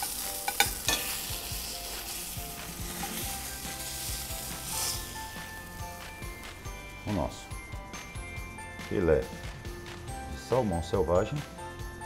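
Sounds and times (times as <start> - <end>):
fish sizzling in a frying pan: 0.0 - 7.0
metal spatula scraping a pan: 0.4 - 5.4.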